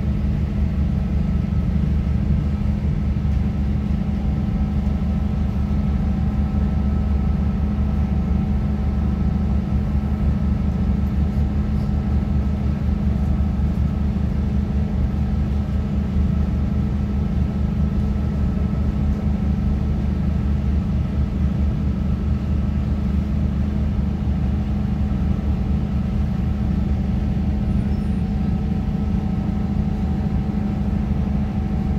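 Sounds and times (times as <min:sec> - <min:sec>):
train engine and wheel drone: 0:00.0 - 0:31.9.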